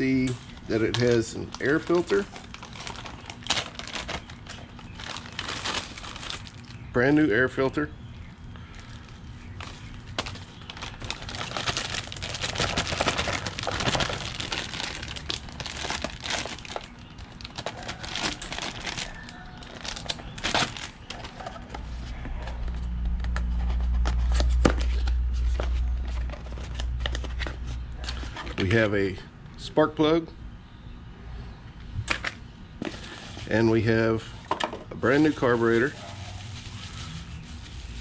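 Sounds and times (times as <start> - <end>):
plastic bags crinkling: 0.0 - 6.9, 8.7 - 21.7, 35.1 - 38.0.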